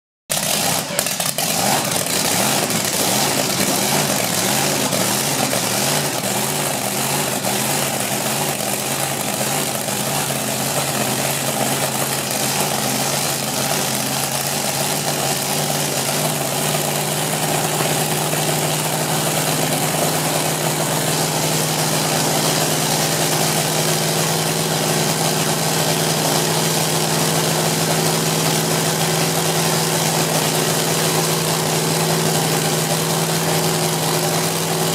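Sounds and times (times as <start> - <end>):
dragster engine idling loudly: 0.3 - 34.9.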